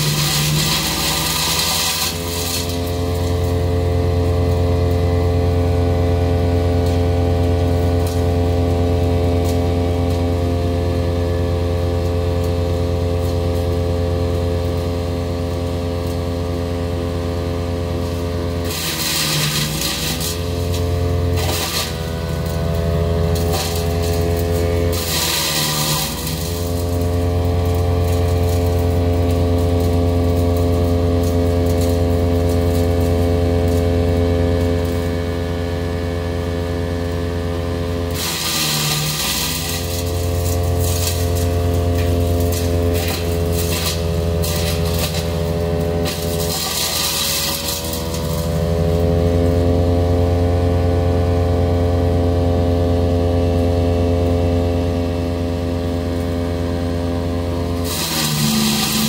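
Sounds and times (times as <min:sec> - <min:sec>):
wood chipper engine running: 0:00.0 - 0:59.0
wood chipping bursts: 0:38.1 - 0:48.5, 0:57.8 - 0:59.0.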